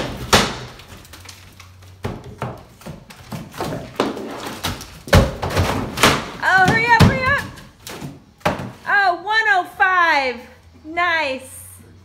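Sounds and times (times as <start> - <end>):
drywall ripping and cracking: 0.0 - 1.9, 3.2 - 8.1.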